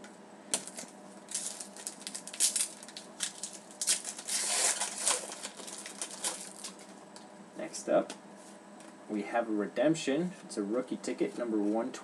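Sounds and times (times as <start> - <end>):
foil wrapper crinkling and tearing: 0.6 - 6.9.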